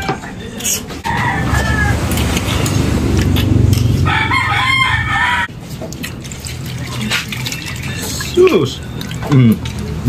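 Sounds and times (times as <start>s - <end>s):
rooster crowing: 1.0s - 2.5s, 3.9s - 5.5s
steady low rumble: 1.1s - 5.5s.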